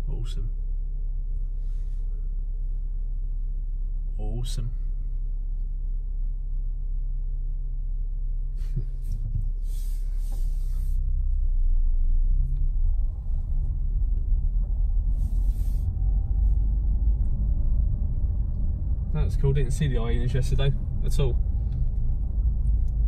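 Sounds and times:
car engine and road noise: 0.0 - 23.0
short hiss: 8.6 - 11.1.

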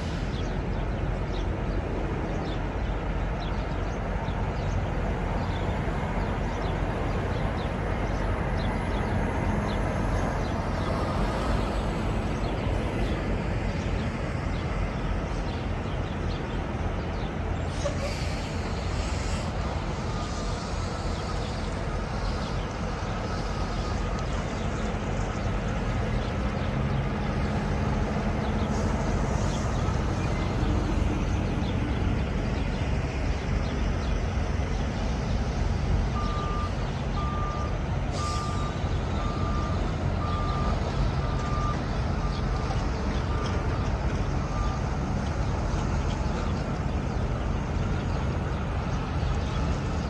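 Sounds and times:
diesel truck engines rumbling: 0.0 - 50.0
truck pulling past: 4.6 - 50.0
truck reversing alarm beeping: 18.5 - 24.6, 36.0 - 45.2.

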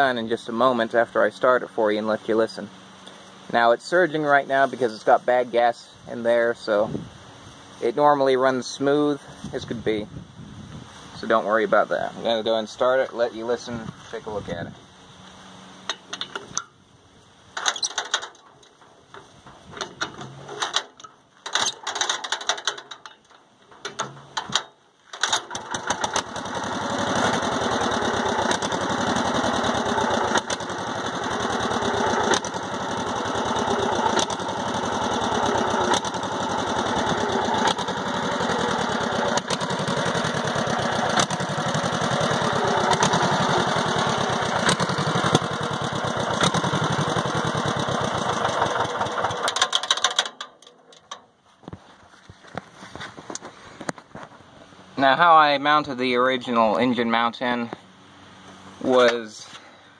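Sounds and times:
recoil starter rope pulls: 17.6 - 51.2
small engine running: 25.2 - 50.3.

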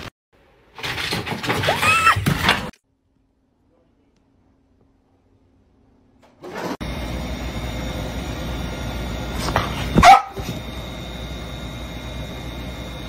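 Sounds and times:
dog barking: 10.0 - 10.6.

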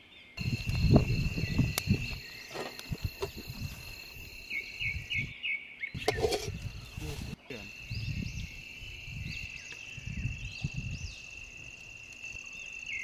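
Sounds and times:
crickets trilling: 0.4 - 13.0
pots thumping: 6.0 - 6.6.

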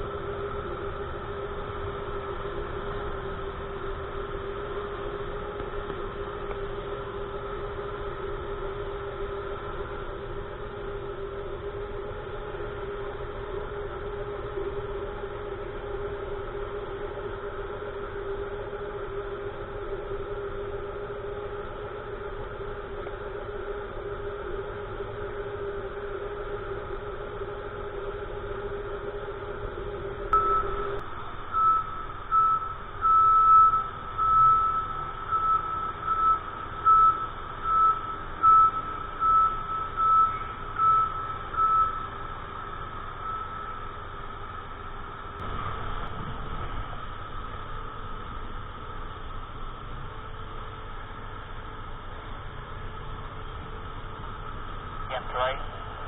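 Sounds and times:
machine hum: 0.0 - 35.4, 42.2 - 56.0
vehicle warning beeper: 30.4 - 42.4, 43.0 - 44.0.

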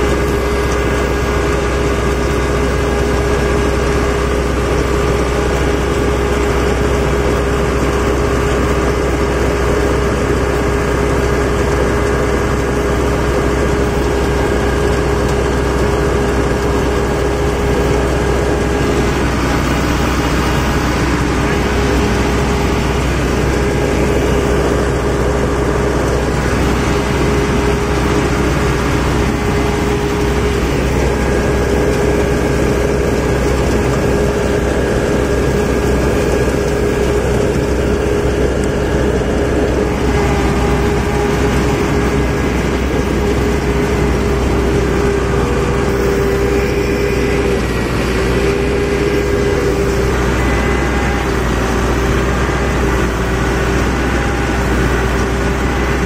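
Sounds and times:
combine harvester drone: 0.0 - 56.0
machinery whine: 0.0 - 56.0.

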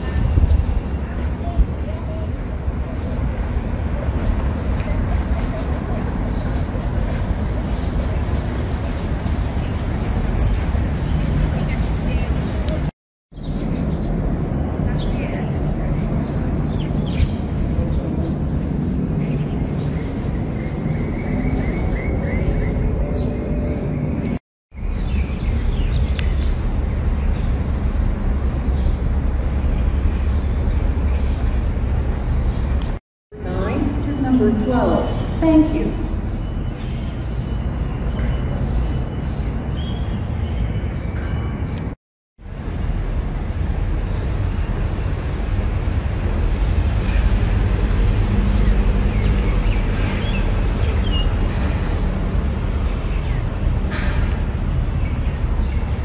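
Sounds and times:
wind rumble on microphone: 0.0 - 36.5.

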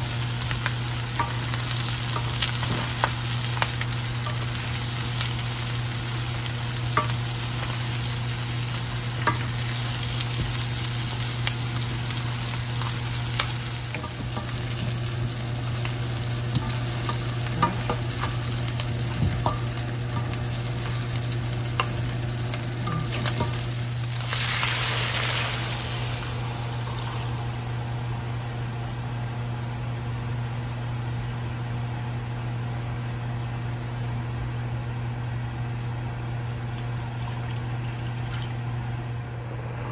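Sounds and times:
meat sizzling in a pan: 0.0 - 27.9.

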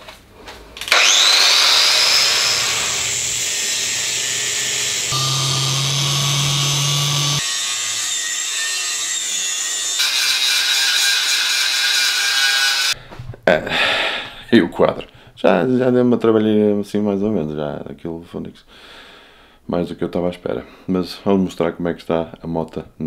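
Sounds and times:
angle grinder cutting steel: 0.9 - 13.0.

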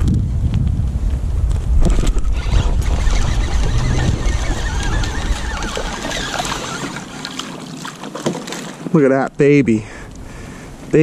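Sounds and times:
wind rumbling on microphone: 0.0 - 7.3
water and kayak noise: 1.5 - 11.0
fish splashing on water surface: 2.8 - 8.9.

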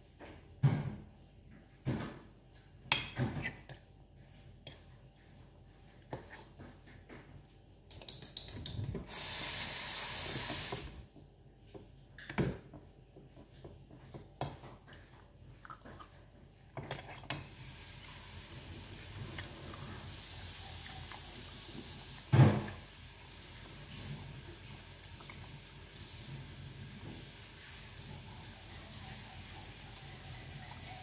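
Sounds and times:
steady loud hiss: 9.0 - 11.0.

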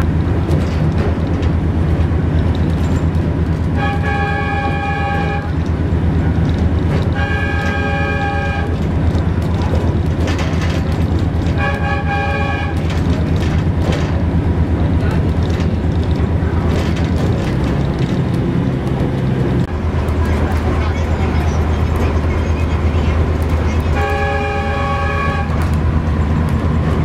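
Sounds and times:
diesel engine drone: 0.0 - 27.0
train horn blasts: 3.8 - 5.6, 7.1 - 8.8, 11.5 - 12.9, 23.9 - 25.8.

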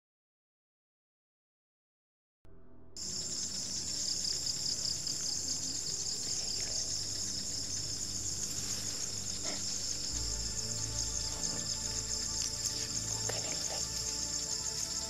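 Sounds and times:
high-pitched insect chorus: 3.0 - 15.0.

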